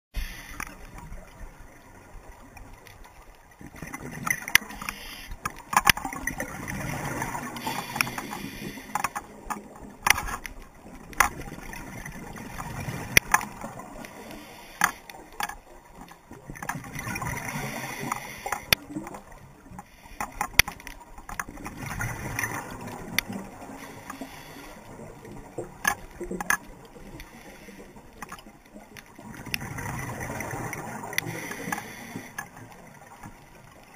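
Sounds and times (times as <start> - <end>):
gurgling exhaled bubbles: 3.6 - 5.0, 6.0 - 8.9, 16.3 - 19.7, 21.5 - 28.1, 28.8 - 33.2.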